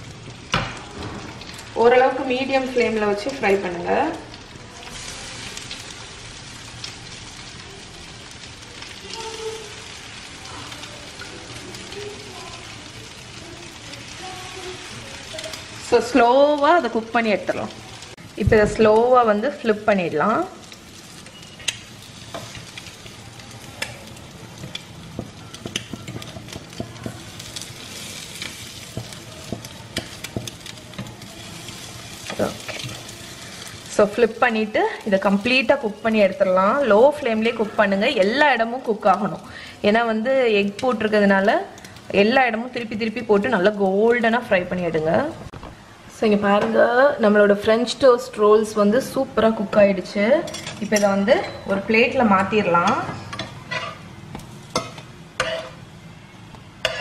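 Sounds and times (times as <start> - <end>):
butter sizzling in a frying pan: 0.0 - 44.7, 48.3 - 57.0
fork tapping a pan: 24.6 - 27.2, 28.9 - 31.1.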